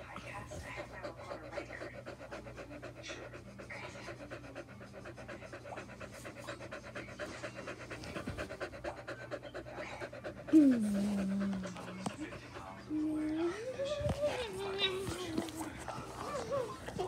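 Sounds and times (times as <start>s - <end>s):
dog panting: 0.0s - 17.0s.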